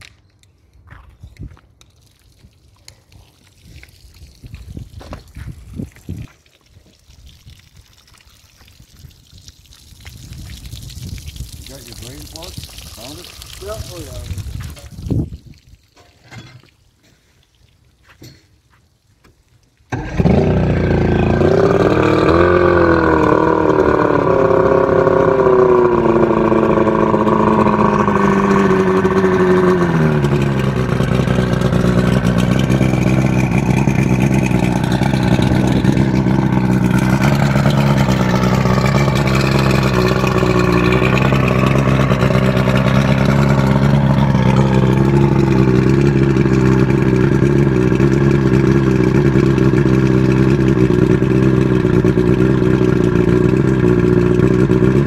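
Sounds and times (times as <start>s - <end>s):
outboard motor starting and idling: 19.9s - 55.0s.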